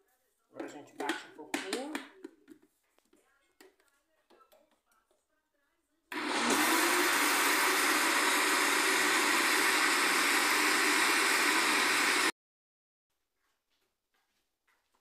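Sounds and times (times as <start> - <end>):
electric blender running: 6.1 - 12.3.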